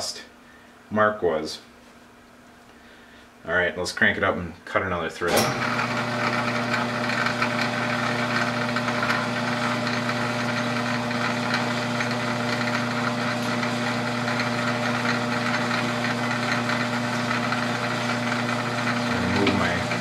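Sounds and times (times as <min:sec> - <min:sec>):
metal lathe motor hum: 0:05.4 - 0:20.0.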